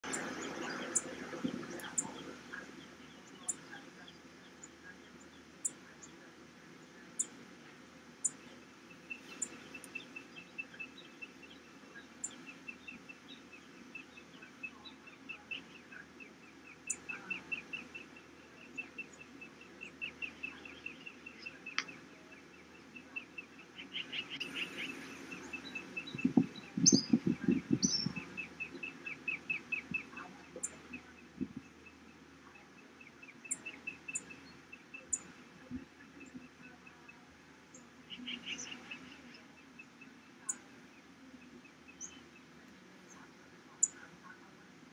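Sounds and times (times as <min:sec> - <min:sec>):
small bird chirping: 0:00.0 - 0:06.2, 0:08.2 - 0:44.1
low background rush: 0:00.0 - 0:44.9.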